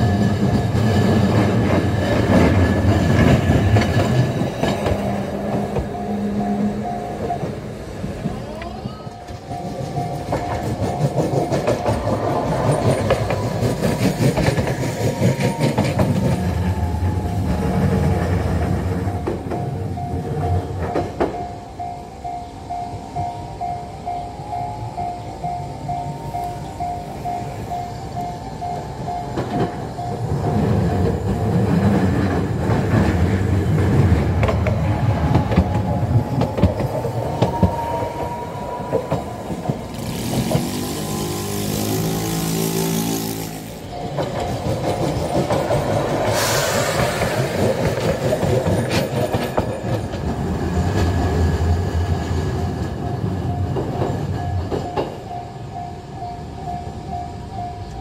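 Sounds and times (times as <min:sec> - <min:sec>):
train rumble and wheel clatter: 0:00.0 - 0:58.0
tram motor whine: 0:00.0 - 0:58.0
level crossing bell clanging: 0:03.8 - 0:31.6, 0:43.8 - 0:46.2.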